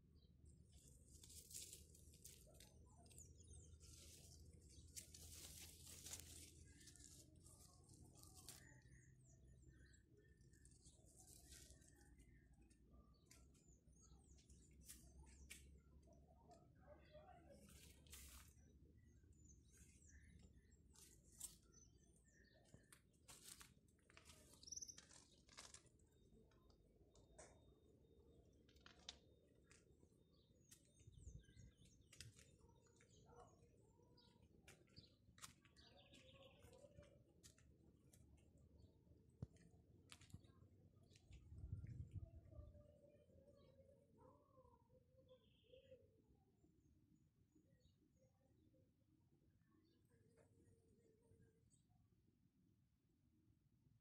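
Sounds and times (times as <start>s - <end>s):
faint bird chirps: 0.0s - 48.8s
leaves rustling: 0.8s - 3.2s, 3.8s - 8.8s, 17.7s - 18.5s.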